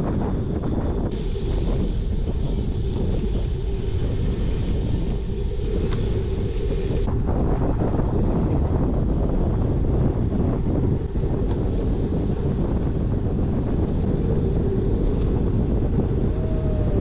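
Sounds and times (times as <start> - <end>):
wind rushing over microphone: 0.0 - 17.0.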